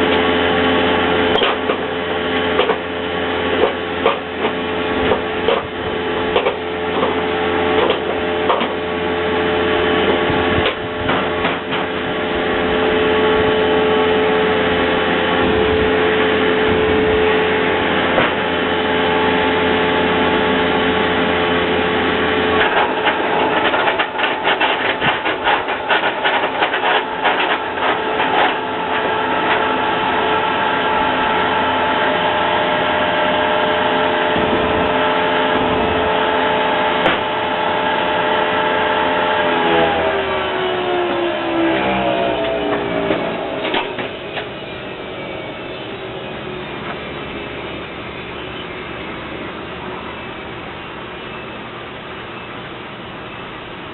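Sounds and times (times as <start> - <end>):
engine humming: 0.0 - 53.9
generator whine: 0.0 - 53.9
rapid rattling clicks and knocks: 22.6 - 29.7.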